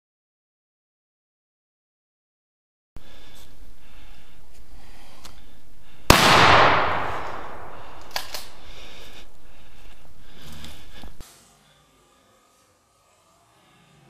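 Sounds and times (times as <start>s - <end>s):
gunshot echoing: 6.1s - 9.6s.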